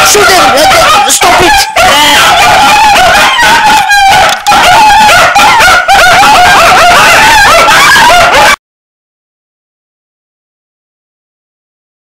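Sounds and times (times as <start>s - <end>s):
small dogs yipping and whining: 0.1s - 8.6s.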